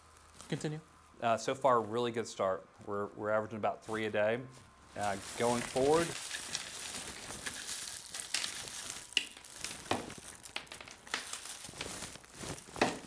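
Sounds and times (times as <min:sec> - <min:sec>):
candy wrappers crinkling: 0:00.0 - 0:00.8, 0:04.8 - 0:13.0.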